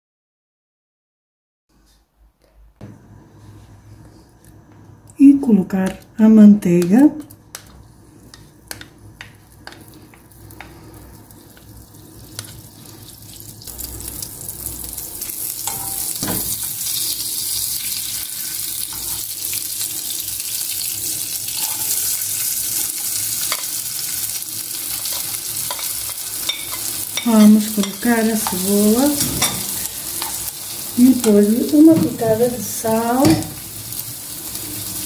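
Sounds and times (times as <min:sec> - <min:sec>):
butter sizzling: 0:06.5 - 0:35.0
spoon scraping and tapping pan: 0:06.8 - 0:10.8, 0:15.6 - 0:16.5, 0:25.0 - 0:30.5.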